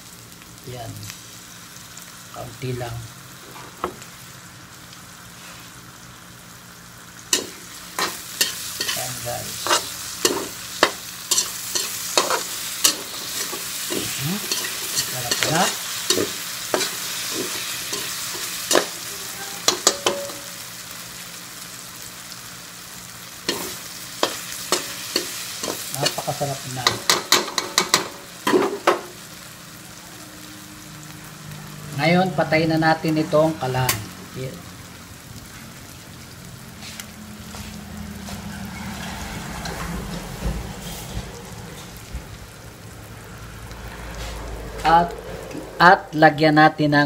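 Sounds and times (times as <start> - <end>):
eggplant sizzling in a wok: 0.0 - 47.0
metal spatula scraping a wok: 7.3 - 20.6, 23.5 - 28.8, 38.3 - 42.0.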